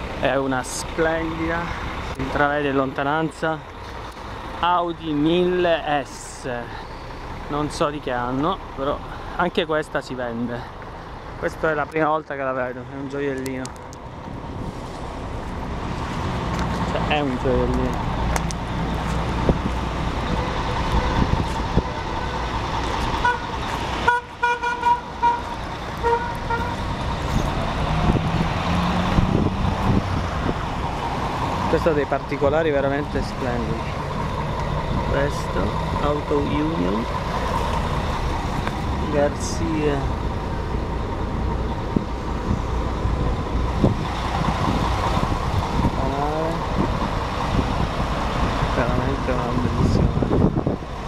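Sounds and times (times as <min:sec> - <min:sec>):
street traffic: 0:00.0 - 0:51.0
vehicle horn tooting: 0:23.2 - 0:26.8.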